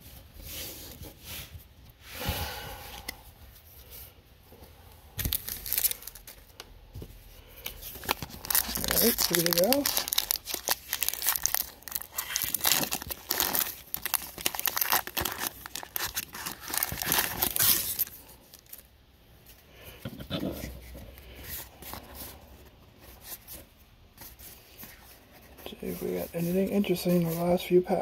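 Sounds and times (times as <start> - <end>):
foil wrapper tearing and crinkling: 5.2 - 6.4, 7.9 - 18.8
cards being handled: 7.6 - 18.2.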